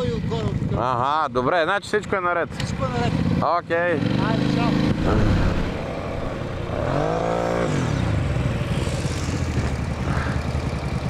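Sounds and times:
quad bike engine revving: 2.6 - 11.0.

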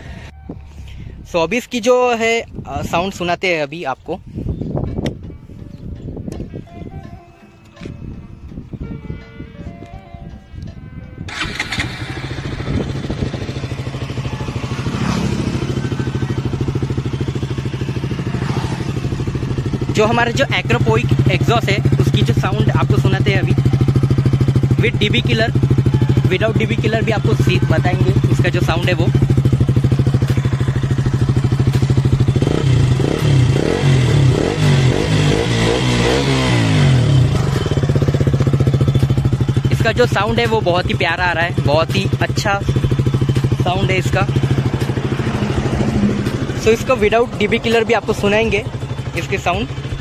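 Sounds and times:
motorcycle engine idling: 11.3 - 50.0.

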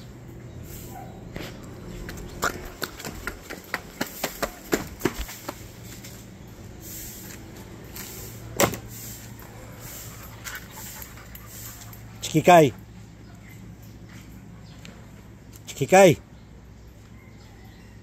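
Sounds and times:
footsteps on stone path: 1.3 - 12.1.

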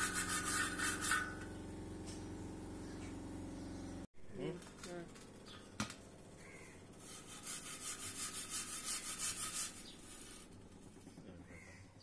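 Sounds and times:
wire brush scraping rusted metal: 0.0 - 1.5, 7.0 - 10.6.

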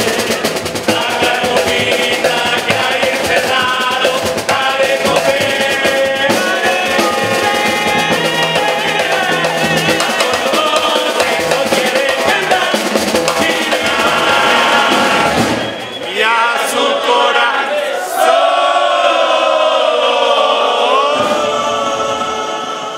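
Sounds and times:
bass drum: 0.0 - 15.9
snare drum: 0.0 - 17.5
men singing in chorus: 0.0 - 22.9.

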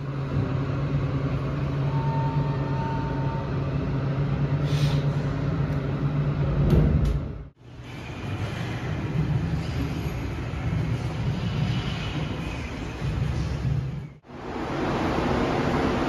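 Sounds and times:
elevator humming: 0.0 - 13.5.

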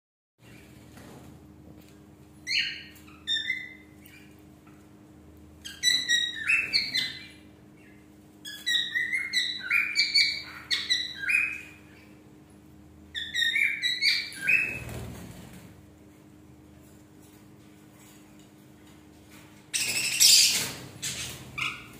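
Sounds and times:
budgerigar chirping: 2.5 - 4.2, 5.6 - 12.1, 13.1 - 14.8.

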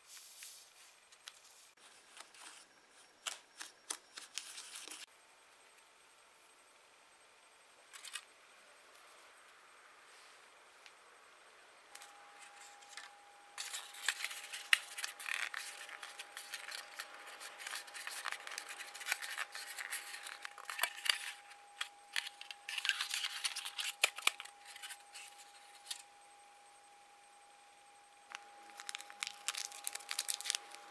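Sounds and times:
plastic mould crinkling and clicking: 28.3 - 30.8.

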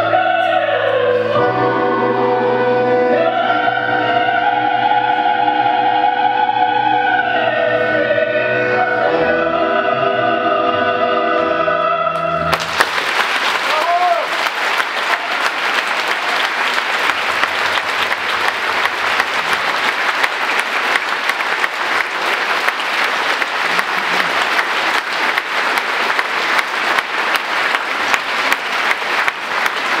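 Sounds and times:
audience applauding: 12.5 - 30.0.

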